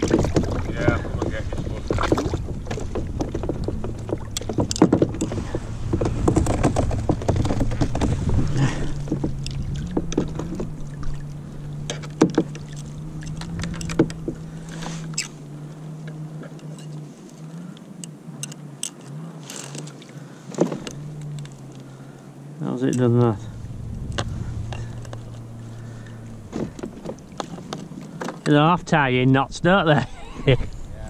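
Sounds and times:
handling clicks and knocks: 0.0s - 8.3s, 11.9s - 14.4s, 18.0s - 21.8s
low rumbling noise: 0.0s - 16.4s, 20.8s - 31.0s
steady low hum: 20.0s - 31.0s.

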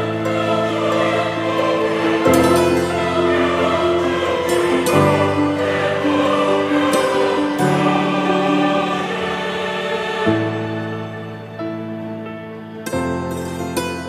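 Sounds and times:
music of sustained chords: 0.0s - 14.0s.

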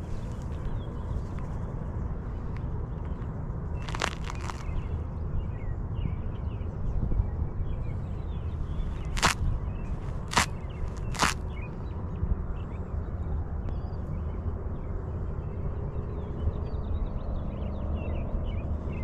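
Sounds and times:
birds chirping: 0.0s - 6.8s, 7.6s - 11.8s
wind rumbling on microphone: 0.0s - 19.0s
sharp slaps: 9.1s - 9.4s, 10.3s - 11.4s.

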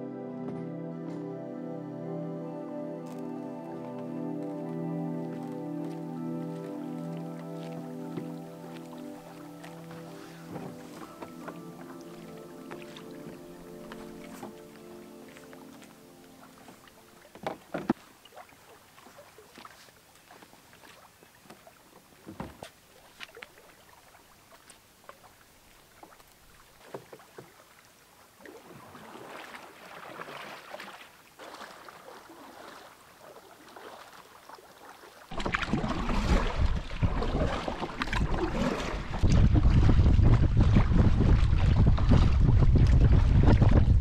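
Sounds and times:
water splashing from paddling: 4.0s - 44.0s
water slapping against hull: 28.5s - 44.0s
wind buffeting microphone: 36.2s - 44.0s.

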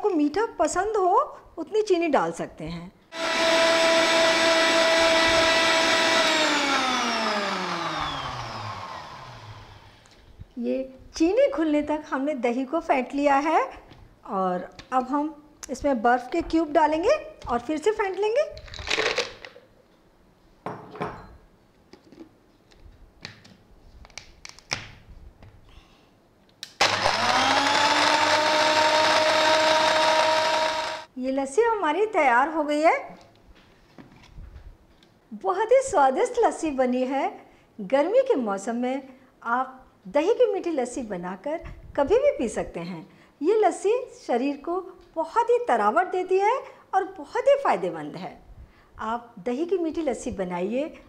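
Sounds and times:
blender motor whining: 3.1s - 10.3s, 26.8s - 31.1s.

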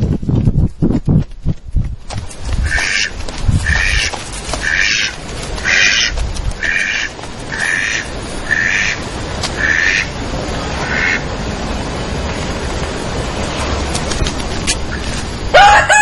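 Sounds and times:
duck quacking: 2.6s - 9.0s, 9.6s - 10.2s, 10.8s - 11.2s.

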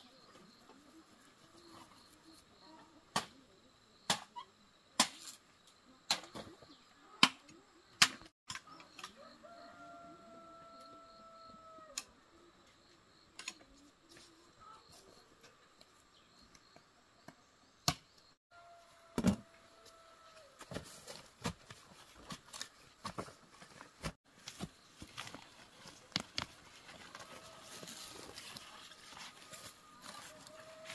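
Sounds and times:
machete cutting bamboo: 5.0s - 5.4s
rooster crowing: 9.1s - 12.0s, 18.5s - 20.6s, 27.0s - 28.4s, 29.4s - 30.9s
scraping and tapping of digging: 20.6s - 30.9s.

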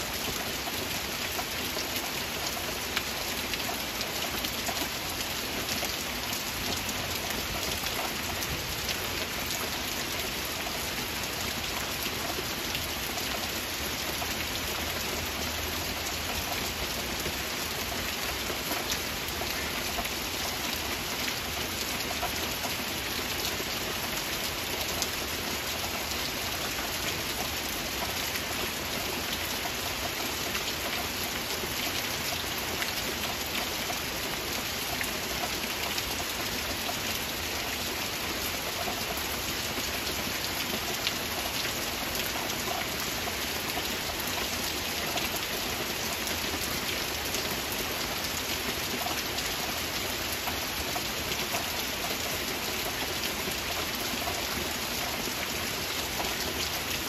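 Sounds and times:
heavy rain in a forest: 0.0s - 57.0s.

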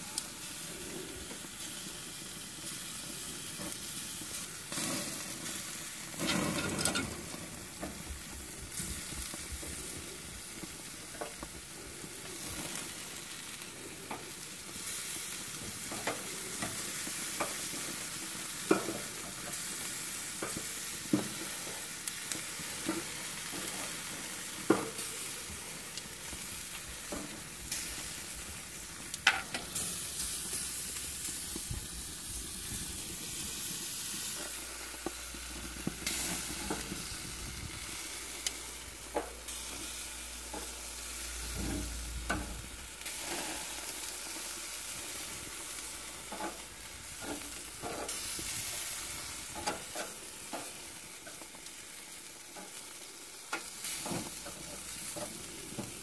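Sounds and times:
sausages sizzling on grill: 0.0s - 56.0s.

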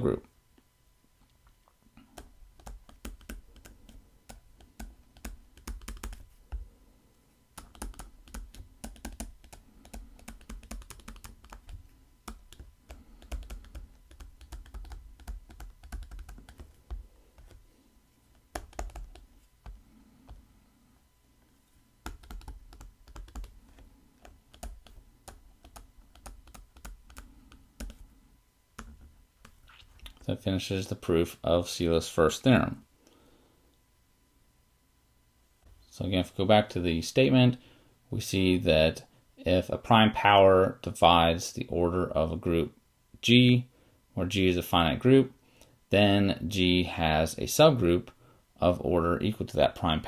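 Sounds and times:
stylus tapping on tablet: 2.2s - 6.6s, 7.6s - 17.6s, 18.3s - 20.4s, 22.0s - 28.0s.

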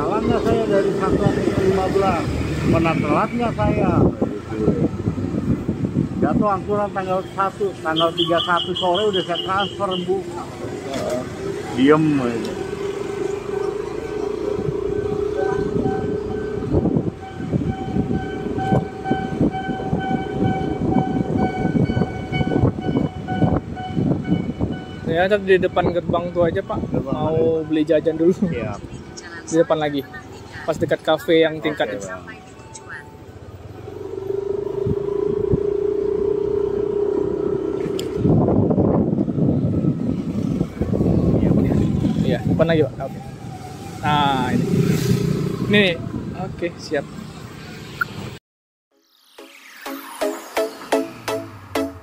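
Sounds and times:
wind buffeting microphone: 0.0s - 7.0s, 12.8s - 27.6s, 33.6s - 46.7s
scooter engine whining: 10.8s - 26.0s, 33.2s - 46.2s
scooter engine accelerating: 33.4s - 42.6s.

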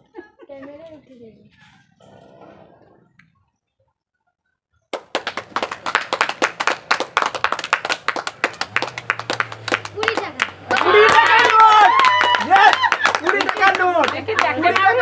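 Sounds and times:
people clapping fast: 4.9s - 15.0s.

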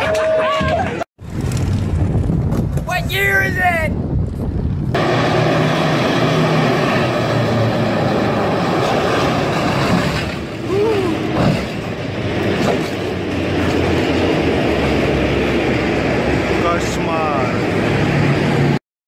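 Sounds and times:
tank engine running: 4.2s - 18.8s.

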